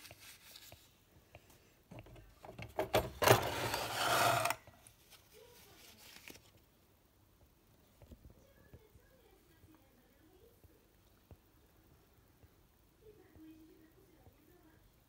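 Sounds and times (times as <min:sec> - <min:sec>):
plastic and metal scraping: 0:01.9 - 0:04.8.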